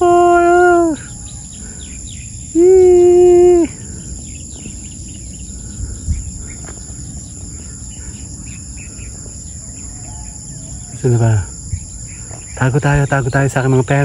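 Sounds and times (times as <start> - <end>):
person shouting: 0.0 - 1.0, 2.6 - 3.8
faint bird chirps: 0.0 - 14.0
insects buzzing: 0.0 - 14.0.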